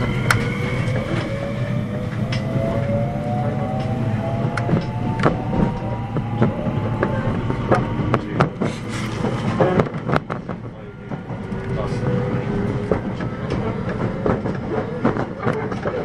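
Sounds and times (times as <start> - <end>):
electric train motor whine: 0.0 - 8.5
train rumbling on rails: 0.0 - 16.0.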